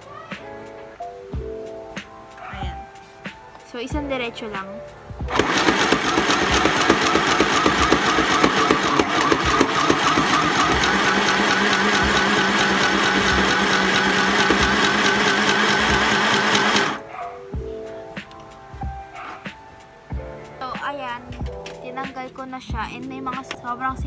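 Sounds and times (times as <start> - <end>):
sewing machine motor hum: 5.3 - 17.0
sewing needle clatter: 5.3 - 17.0.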